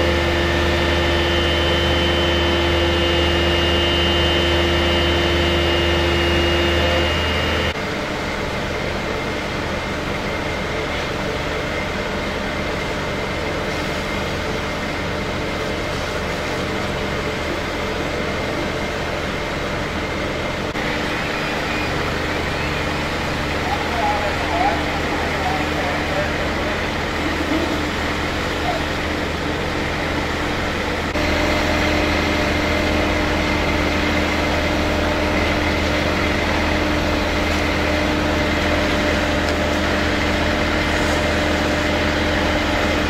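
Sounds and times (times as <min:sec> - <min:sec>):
steady hum: 0:00.0 - 0:08.2, 0:20.5 - 0:43.0
vehicle engines idling: 0:00.0 - 0:43.0.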